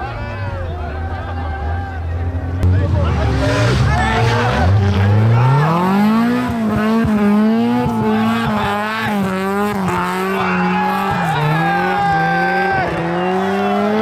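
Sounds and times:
car engine revving: 0.0s - 14.0s.

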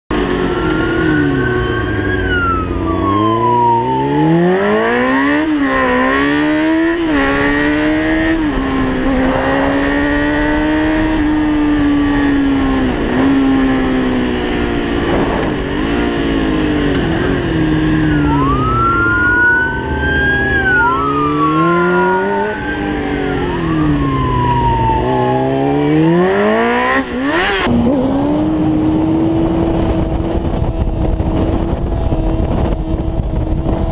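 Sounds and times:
motorcycle engine revving: 0.1s - 33.9s
siren wailing: 0.4s - 13.0s, 17.2s - 27.4s.

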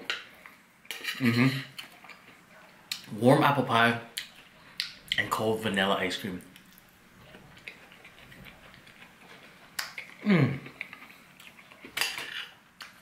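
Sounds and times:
wet chewing clicks: 6.5s - 11.9s
person humming in enjoyment: 10.2s - 10.7s.

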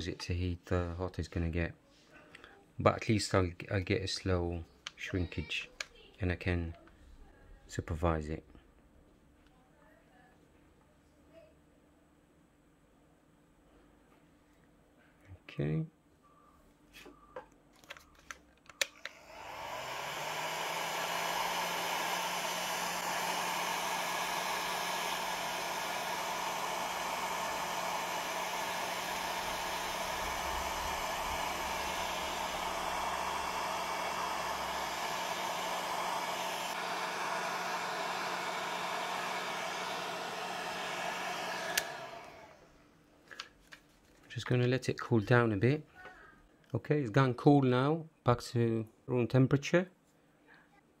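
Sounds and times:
heat gun fan humming: 18.9s - 42.7s.

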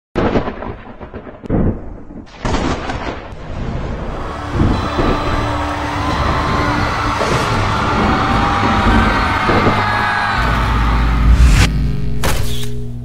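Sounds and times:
deep thunder-like booms: 0.2s - 5.6s
crowd din: 4.0s - 11.7s.

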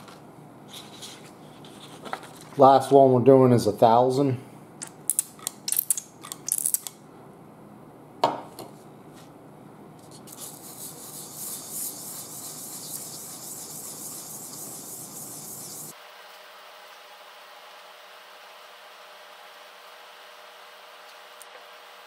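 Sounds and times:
metal rubbing on wet sandpaper: 10.1s - 16.0s.

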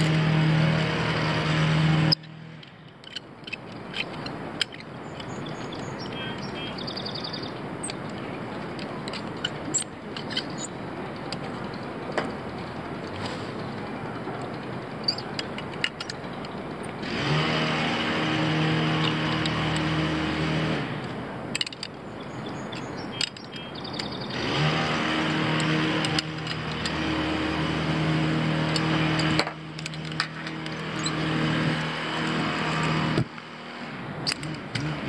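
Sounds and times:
pliers clicking on metal link: 2.1s - 5.4s, 7.8s - 12.3s, 14.4s - 17.0s, 21.0s - 22.0s, 22.7s - 24.2s, 25.2s - 33.3s, 34.2s - 34.9s
motorised machine running: 17.0s - 21.0s, 24.3s - 35.0s.

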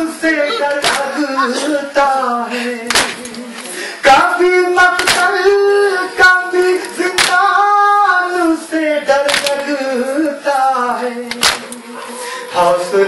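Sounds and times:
voices singing a lament: 0.0s - 13.0s
hands slapping chests: 0.8s - 1.1s, 2.9s - 3.4s, 5.0s - 5.4s, 7.1s - 7.5s, 9.2s - 9.6s, 11.3s - 11.8s.

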